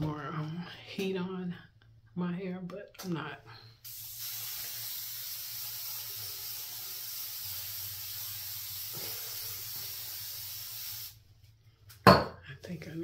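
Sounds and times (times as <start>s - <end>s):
aerosol spray hissing: 3.8s - 11.2s.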